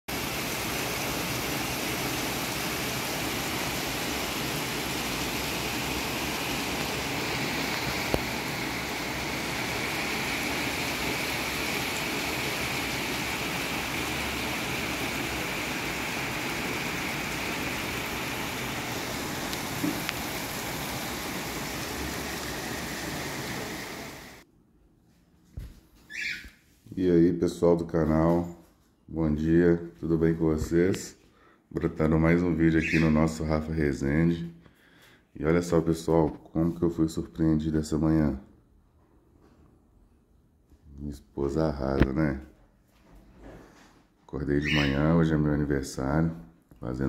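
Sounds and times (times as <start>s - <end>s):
steady rain falling: 0.1s - 24.4s.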